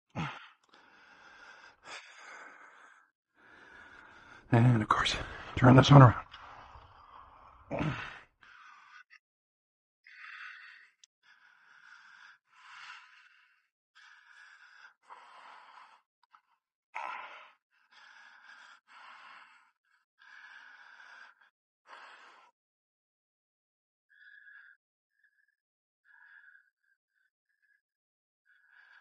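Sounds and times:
man breathing heavily: 0.1 - 9.2, 10.1 - 22.5.

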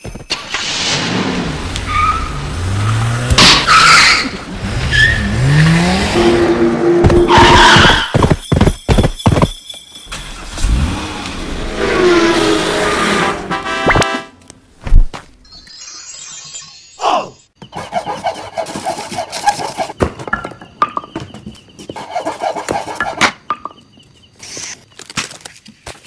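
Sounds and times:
tyres skidding and squealing: 0.0 - 13.7, 15.4 - 25.4
car engine revving: 0.6 - 7.4, 10.2 - 13.6.

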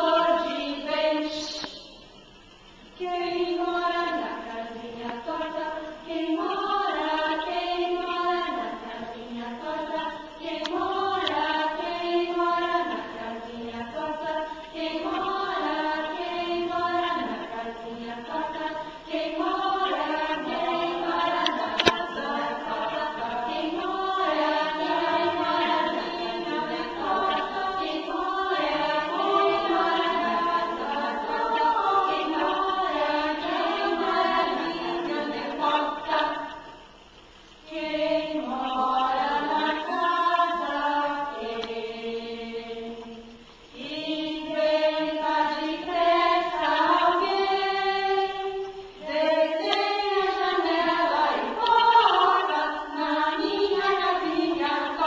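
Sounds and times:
choir singing: 0.0 - 2.0, 3.0 - 55.0
sharp click: 21.4 - 22.1.

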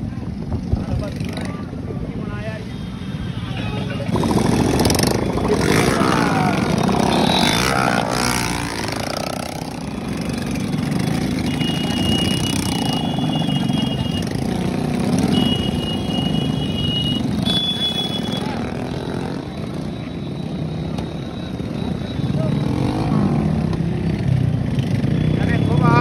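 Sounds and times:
motorcycle engine rumbling: 3.6 - 25.9.

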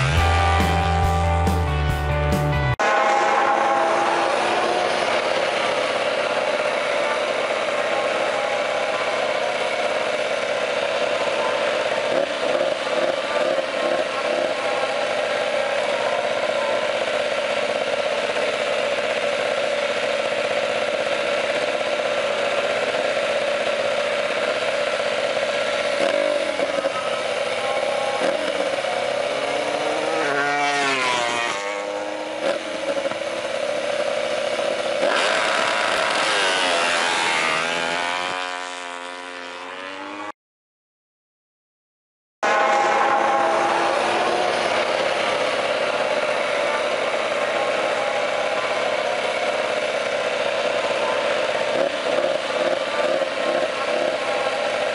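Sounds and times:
motorcycle engine idling and revving: 0.0 - 40.4, 42.4 - 54.9.

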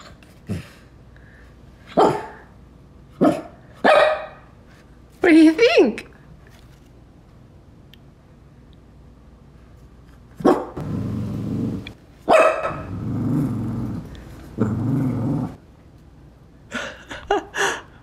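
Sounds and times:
dog barking: 1.9 - 2.4, 3.2 - 4.5, 10.4 - 10.8, 12.3 - 12.9
dog growling: 10.8 - 12.0, 12.8 - 15.6.

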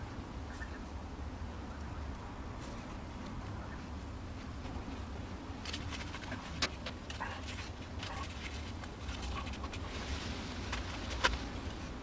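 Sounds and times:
steady low hum: 0.0 - 12.0
cord and glove handling: 4.4 - 12.0.

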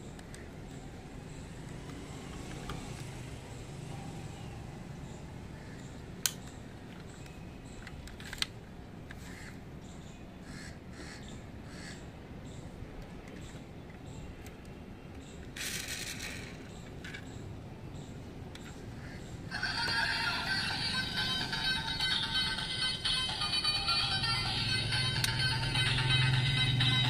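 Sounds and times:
faint bird calls: 9.2 - 12.7
sharp clicks of model car: 15.5 - 17.3.

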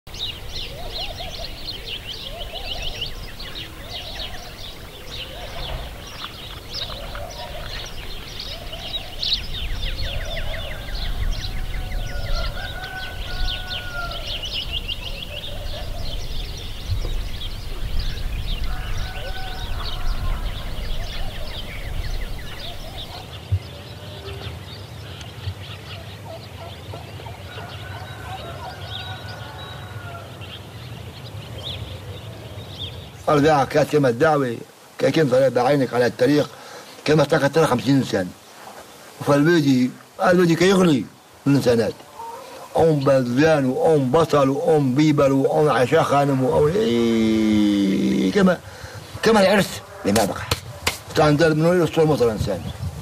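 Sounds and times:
small birds chirping: 0.1 - 53.0
domestic fowl calls: 10.0 - 16.2, 18.2 - 23.3, 26.3 - 30.5, 42.0 - 42.8.

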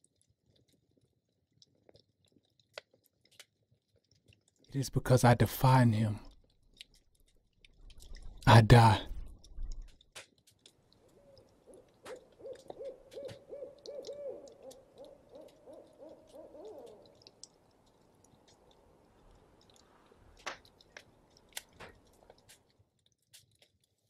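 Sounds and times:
faint clicks: 6.2 - 24.0
owl hooting: 11.2 - 17.2.

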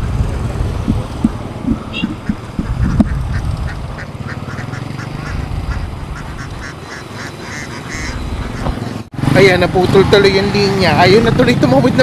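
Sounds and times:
steady low rumble: 0.0 - 4.0
ducks quacking: 0.0 - 9.0.

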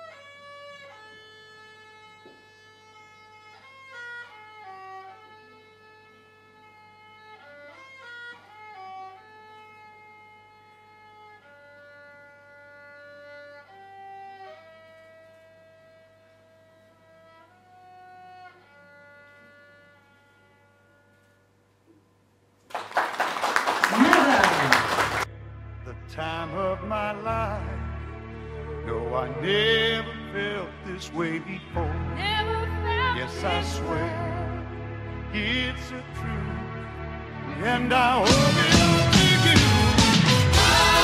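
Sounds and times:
solo violin melody: 0.0 - 16.2, 16.8 - 20.6
loud applause: 22.7 - 25.3.

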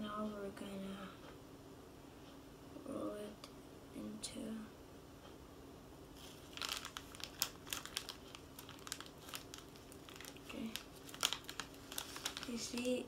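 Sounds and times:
plastic packaging crinkling: 6.2 - 13.0.

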